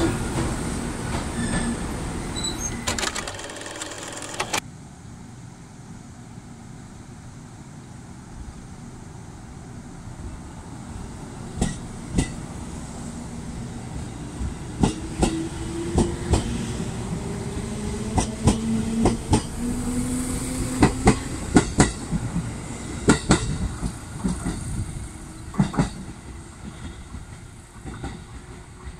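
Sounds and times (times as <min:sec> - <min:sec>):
train motor whine: 0:02.4 - 0:04.6
train wheels clacking over rail joints: 0:02.7 - 0:04.6, 0:20.8 - 0:22.2, 0:25.5 - 0:28.9.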